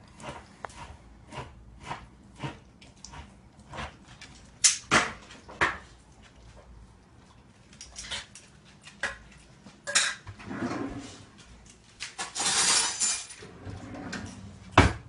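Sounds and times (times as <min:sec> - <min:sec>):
dishes and utensils clinking: 0:09.0 - 0:10.4, 0:12.1 - 0:13.5.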